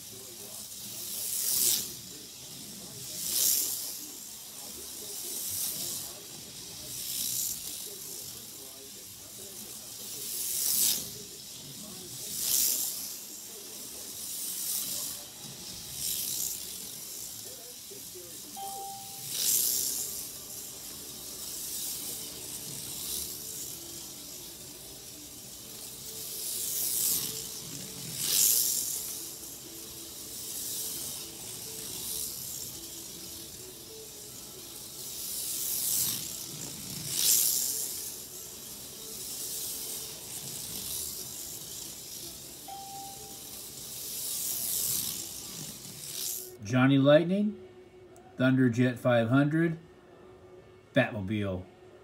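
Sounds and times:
slot car motor whirring: 0:00.0 - 0:46.6
short beep: 0:18.6 - 0:19.2.

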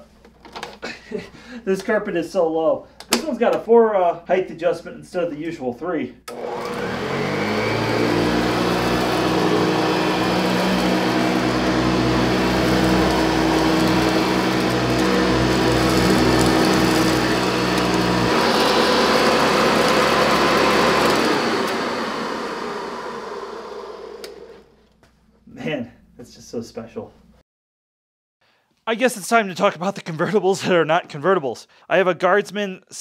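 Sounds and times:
vacuum cleaner running on carpet: 0:06.3 - 0:24.6.

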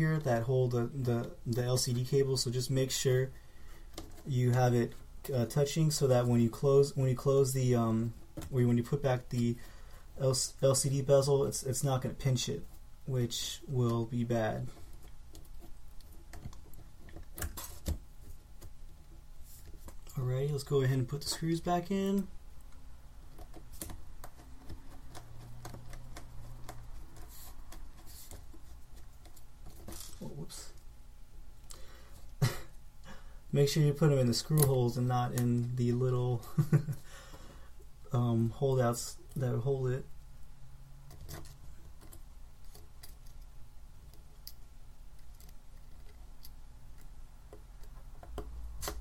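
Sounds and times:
hands handling small parts: 0:13.6 - 0:30.9.

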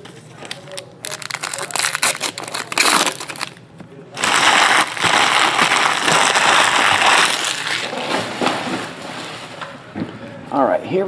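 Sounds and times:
wrappers crumpling and crinkling: 0:00.3 - 0:03.6, 0:04.2 - 0:09.3.

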